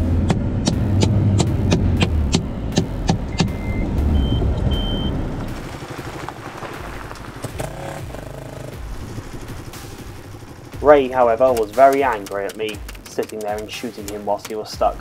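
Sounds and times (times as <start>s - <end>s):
low rumble: 0.0s - 12.2s
truck engine running: 0.0s - 15.0s
short electronic beeps: 3.3s - 5.2s.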